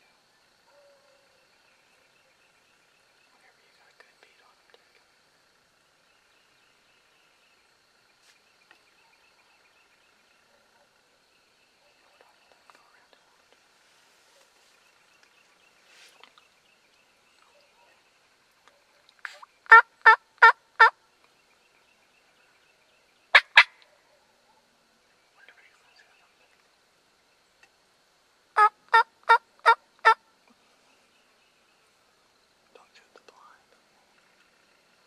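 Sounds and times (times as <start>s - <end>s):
turkey call yelps: 19.2s - 21.0s, 23.3s - 23.8s, 28.6s - 30.2s.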